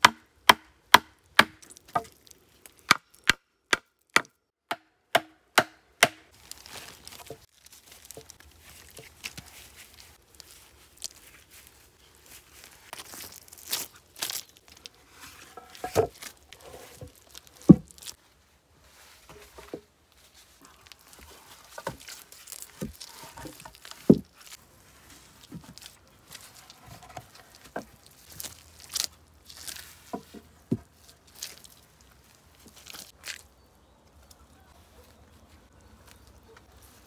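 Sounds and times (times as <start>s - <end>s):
wooden log thumping: 0.0s - 2.2s, 2.9s - 6.2s, 15.8s - 16.2s, 17.0s - 18.0s, 22.8s - 24.3s
footsteps on damp soil: 6.3s - 37.0s.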